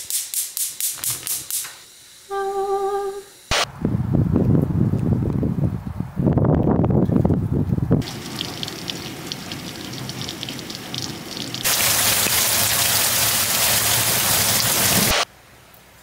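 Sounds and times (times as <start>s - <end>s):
rain falling: 8.0s - 15.2s.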